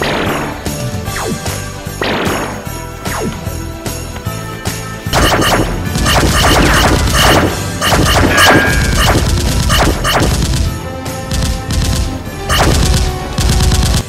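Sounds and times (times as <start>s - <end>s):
gunfire and explosion effects: 0.0s - 4.0s, 5.1s - 14.0s
soundtrack music with sleigh bells: 0.7s - 10.2s.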